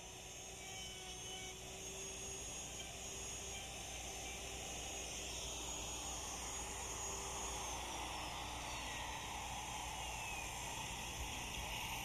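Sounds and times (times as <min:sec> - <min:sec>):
router winding down whine: 0:00.0 - 0:12.0.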